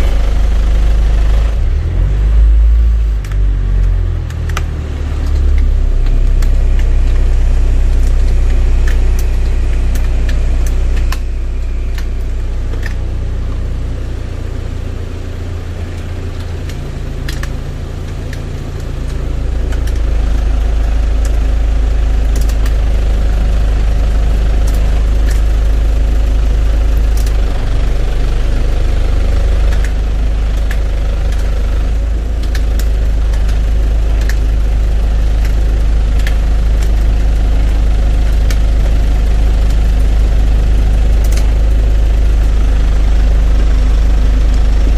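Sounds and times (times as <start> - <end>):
blower fan air noise: 0.0 - 44.9
minibus engine idling: 0.0 - 44.9.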